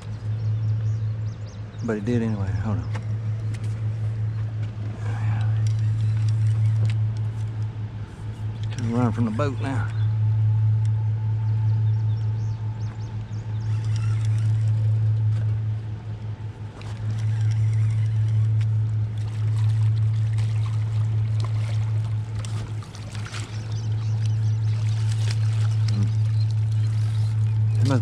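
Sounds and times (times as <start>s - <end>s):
outboard motor humming: 0.0s - 28.0s
water splashing: 13.6s - 28.0s.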